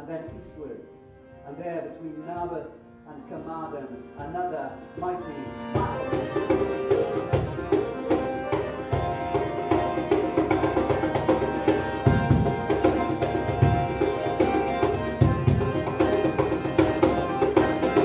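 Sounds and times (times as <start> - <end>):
harp melody: 5.0 - 18.0.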